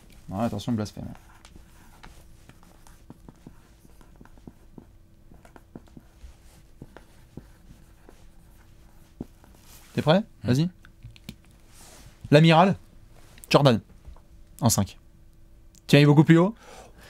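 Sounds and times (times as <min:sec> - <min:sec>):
pens scratching on paper: 0:00.2 - 0:10.1.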